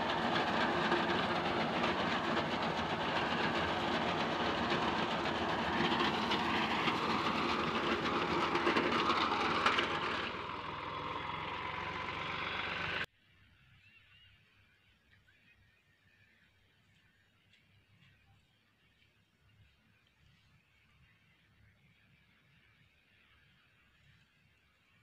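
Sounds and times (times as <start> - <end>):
tractor engine drone: 0.0 - 13.1.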